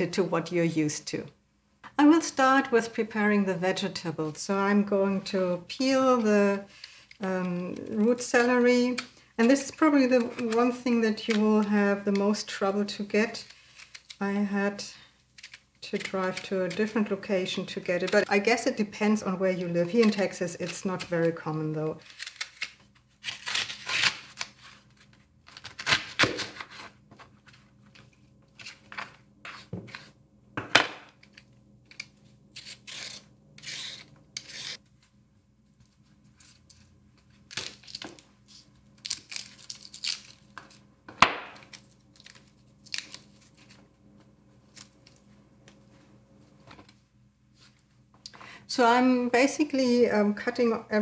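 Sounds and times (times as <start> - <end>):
vegetable peeler scraping: 15.4 - 18.3, 32.6 - 34.8.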